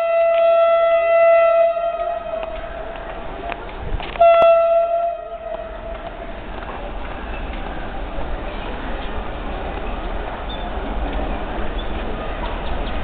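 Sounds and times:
locomotive horn blasts: 0.0 - 3.2, 4.0 - 6.4.

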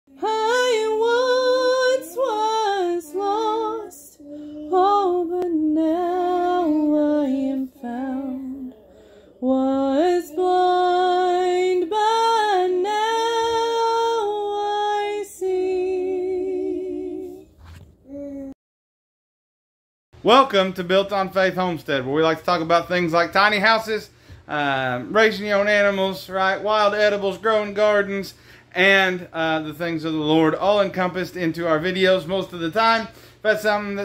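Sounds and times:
woman singing unaccompanied: 0.1 - 17.5.

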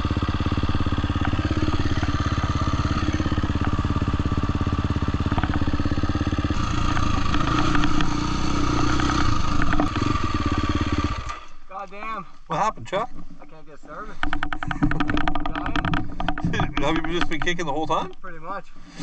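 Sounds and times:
dirt bike engine running: 0.0 - 12.2, 13.9 - 18.1
clicks and rattles: 5.3 - 5.8, 14.1 - 18.2.

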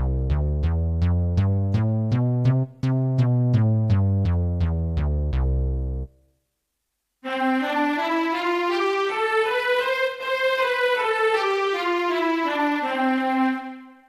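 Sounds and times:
keyboard plucked bass notes: 0.0 - 6.1.

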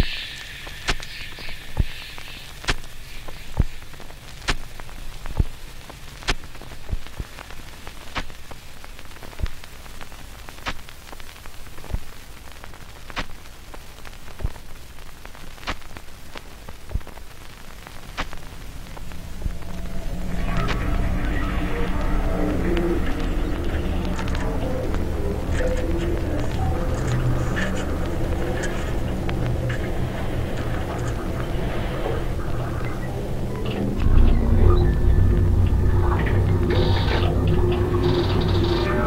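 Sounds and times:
low hiss and hum: 0.0 - 39.0
low droning tone: 18.5 - 39.0.

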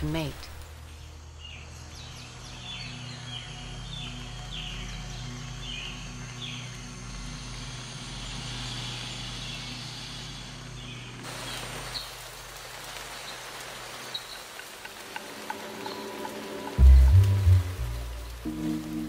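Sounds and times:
rain pattering: 11.2 - 19.0
water drips: 11.2 - 19.0.

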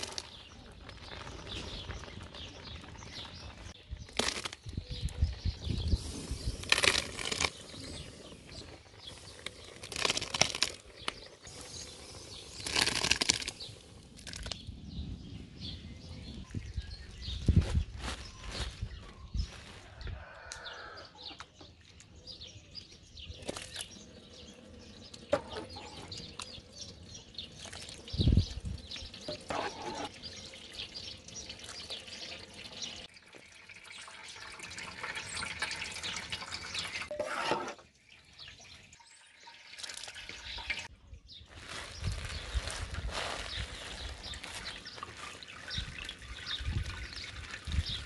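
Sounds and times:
liquid sloshing and dripping: 29.1 - 40.9, 44.4 - 48.0.

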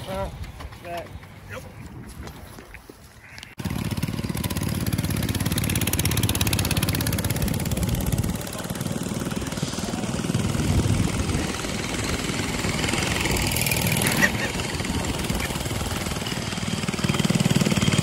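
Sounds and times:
small engine running: 3.6 - 18.0.

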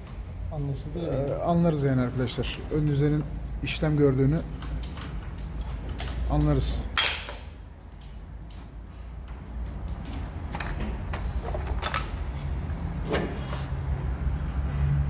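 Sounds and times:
knocks and clicks of metal parts: 4.6 - 12.2.

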